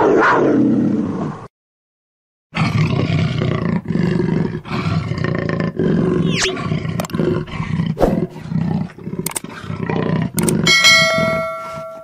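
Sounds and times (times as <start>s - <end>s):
lion and hyenas growling: 2.6s - 11.9s
click: 9.2s - 9.4s, 10.4s - 10.6s
bright bell chime: 10.7s - 12.0s.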